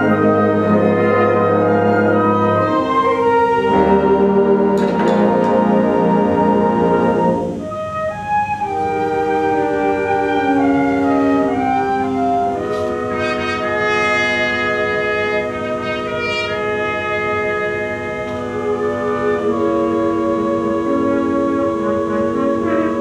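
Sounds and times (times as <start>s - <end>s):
concert band playing held chords: 8.7s - 23.0s.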